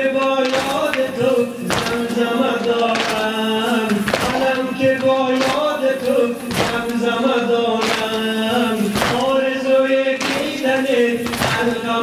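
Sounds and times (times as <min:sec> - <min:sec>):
man chanting: 0:00.0 - 0:12.0
hands slapping chests: 0:01.7 - 0:03.3, 0:03.9 - 0:04.5, 0:06.5 - 0:07.0, 0:07.8 - 0:08.3, 0:08.9 - 0:09.4.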